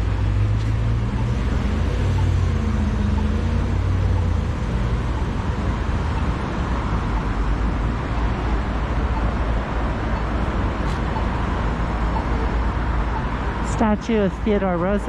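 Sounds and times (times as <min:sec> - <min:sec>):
city traffic noise: 0:00.0 - 0:15.0
vehicle engine low drone: 0:00.0 - 0:15.0.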